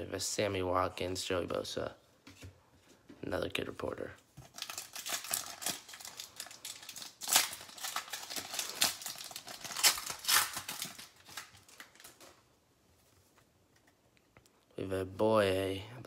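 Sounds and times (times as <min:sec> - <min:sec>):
foil wrapper tearing and crinkling: 0:04.4 - 0:12.4.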